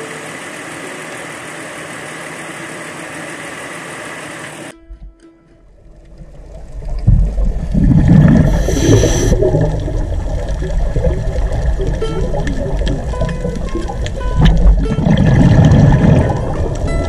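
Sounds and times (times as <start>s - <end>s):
underwater rumbling gurgling water: 5.7s - 17.0s
short hiss: 8.5s - 9.4s.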